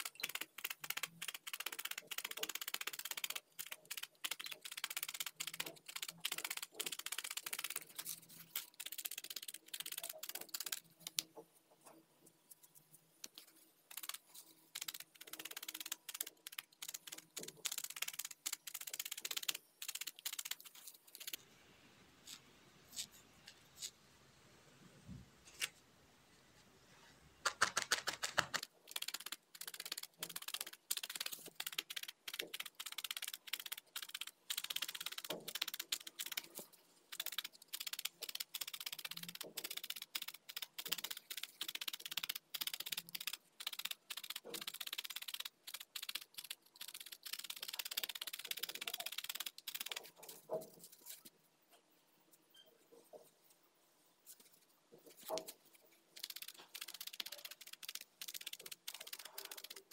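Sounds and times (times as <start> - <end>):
felting needle ticking into foam: 0.0 - 11.4, 13.2 - 21.4, 27.4 - 50.2, 56.2 - 59.9.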